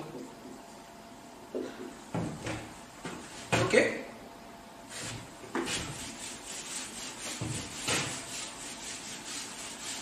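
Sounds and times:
duster rubbing on whiteboard: 4.9 - 10.0.

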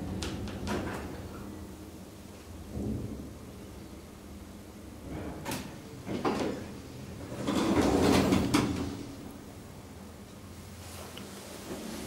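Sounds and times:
elevator doors sliding open: 5.0 - 9.2.

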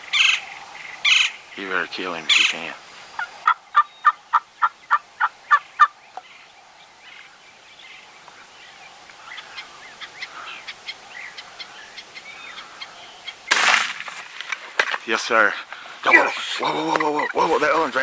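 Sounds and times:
turkey yelps: 3.2 - 6.0, 16.0 - 17.5.

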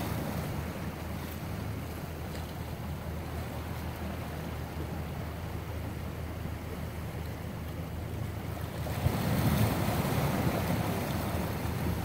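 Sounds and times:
surf washing against rocks: 0.0 - 5.3, 8.4 - 12.0
wind buffeting the microphone: 8.7 - 12.0.

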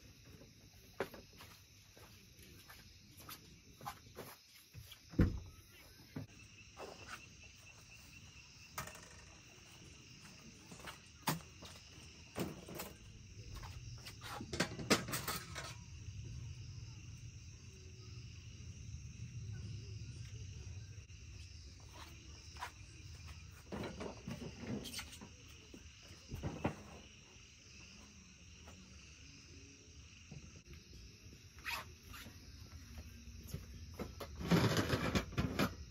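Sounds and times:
insects chirping: 0.0 - 35.9
camping gear knocking and clattering: 8.6 - 16.0, 23.6 - 27.2, 33.5 - 35.9.

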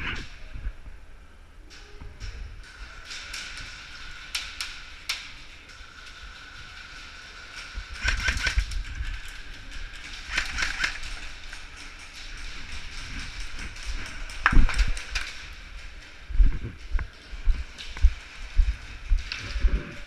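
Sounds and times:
airsoft rapid bursts: 6.4 - 9.0, 10.1 - 11.4.

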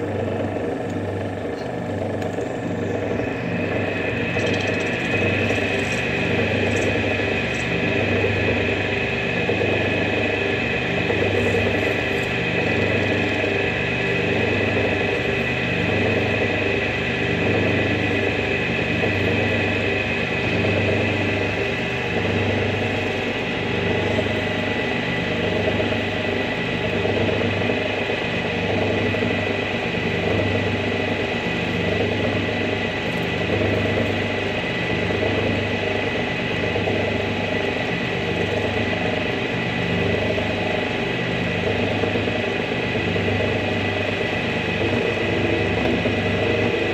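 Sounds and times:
metal lathe running: 0.0 - 46.9
tool scraping spinning block: 4.3 - 7.9.

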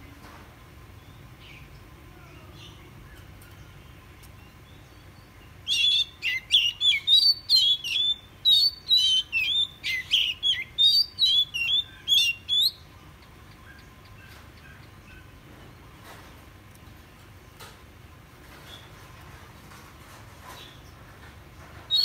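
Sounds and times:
bird singing whistled notes: 4.6 - 12.9.

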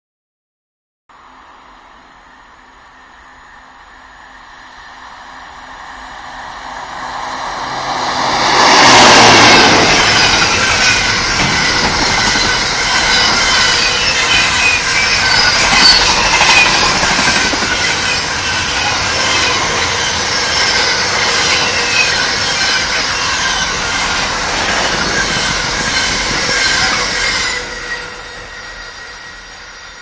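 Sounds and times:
freight train passing: 1.1 - 30.0
wheels clattering on rails: 7.6 - 28.2
faint wheel squeal: 9.9 - 30.0.

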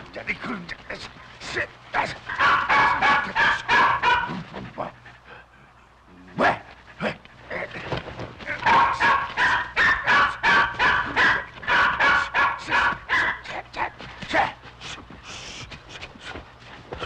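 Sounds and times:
dog barking: 2.0 - 4.5, 8.6 - 13.9.

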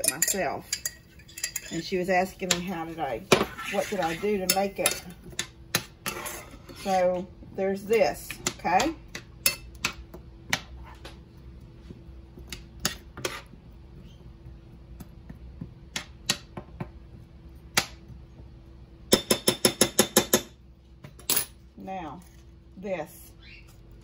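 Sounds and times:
spoon stirring in frying pan: 0.0 - 7.3, 11.9 - 13.6.

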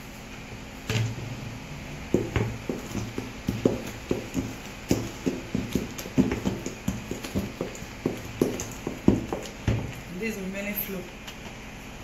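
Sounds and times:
wooden spatula knocking a bowl: 2.1 - 10.0.

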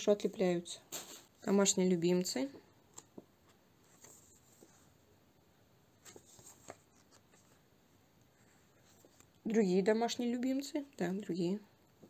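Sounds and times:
book pages rustling: 2.9 - 5.1, 5.9 - 9.4.

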